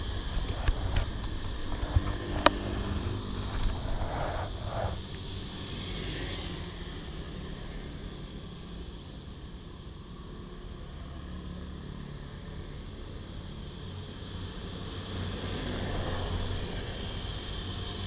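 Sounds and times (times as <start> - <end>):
motor scooter engine running: 0.0 - 7.5.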